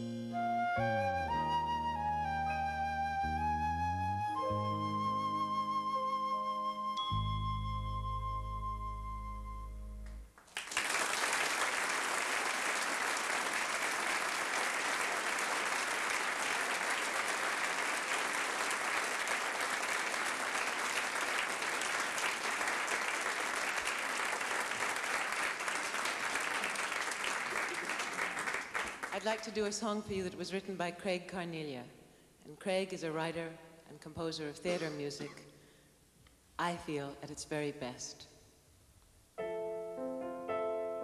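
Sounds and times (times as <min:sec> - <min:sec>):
flute and bass chord: 0:00.0 - 0:10.2
audience applauding: 0:10.4 - 0:29.3.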